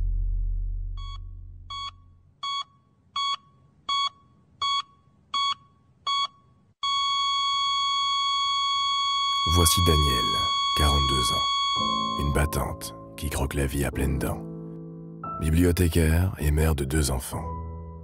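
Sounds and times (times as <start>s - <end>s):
heart monitor beeping: 1.0s - 12.5s.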